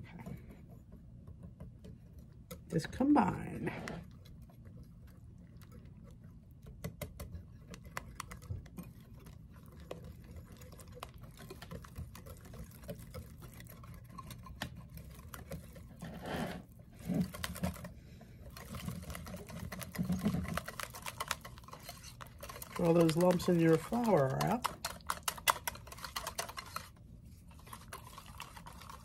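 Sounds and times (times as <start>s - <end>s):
whisk clicking on glass bowl: 5.6s - 16.0s, 17.2s - 27.0s, 27.6s - 29.0s.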